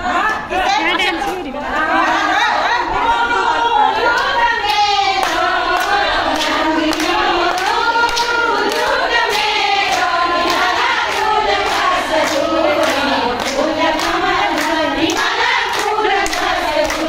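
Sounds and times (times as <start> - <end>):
women singing together: 0.0 - 17.0
hands clapping to a beat: 4.1 - 17.0.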